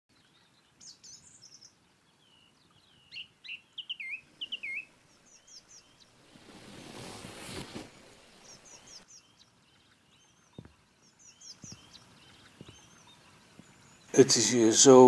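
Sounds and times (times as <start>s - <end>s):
birds singing and chirping: 0.1s - 6.2s, 7.5s - 15.0s
soft rustling: 5.8s - 9.0s.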